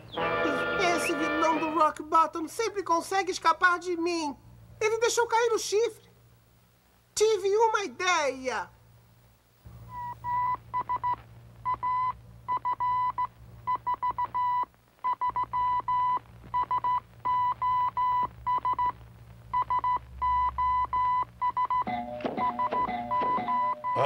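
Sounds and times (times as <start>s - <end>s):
short and long beeps: 19.6s - 24.0s.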